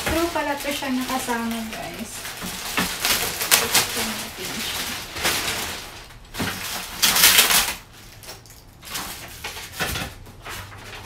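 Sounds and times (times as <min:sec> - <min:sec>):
plastic packaging crinkling: 0:00.0 - 0:11.0.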